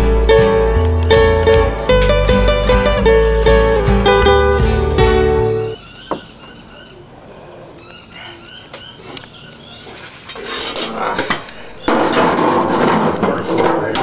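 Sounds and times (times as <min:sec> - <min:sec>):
small birds chirping: 0:00.0 - 0:12.1, 0:13.2 - 0:14.0
wheelbarrow rustling clatter: 0:10.0 - 0:14.0
knocks: 0:11.2 - 0:14.0.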